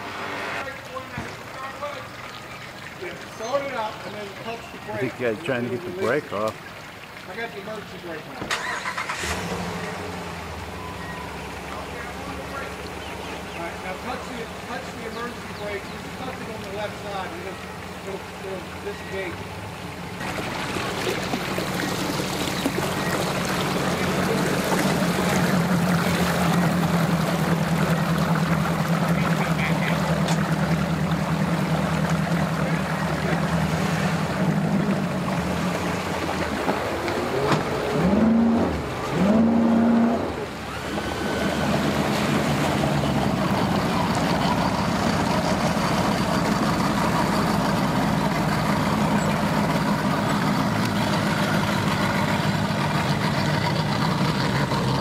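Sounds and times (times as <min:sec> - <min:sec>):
outboard motor hum: 0:00.0 - 0:55.0
propellers churning water: 0:00.0 - 0:55.0.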